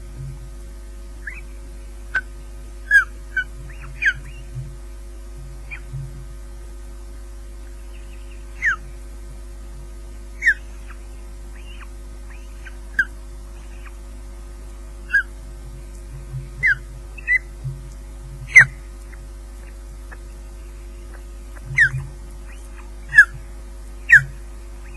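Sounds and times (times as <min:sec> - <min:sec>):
low electrical hum: 0:00.0 - 0:24.9
ospreys chirping: 0:01.2 - 0:04.6, 0:05.6 - 0:06.0, 0:07.6 - 0:09.1, 0:10.2 - 0:24.9.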